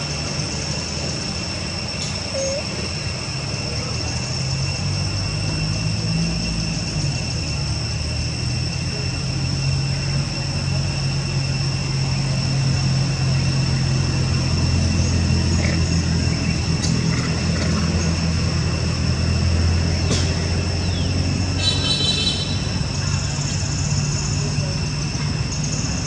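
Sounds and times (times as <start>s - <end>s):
high-pitched whine: 0.0s - 16.8s
engine humming: 0.0s - 26.0s.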